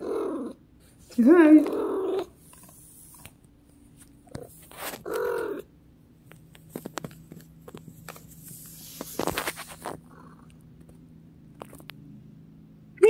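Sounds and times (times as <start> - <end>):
rustling: 0.9 - 5.6, 6.3 - 10.2
cat meowing: 5.0 - 5.7.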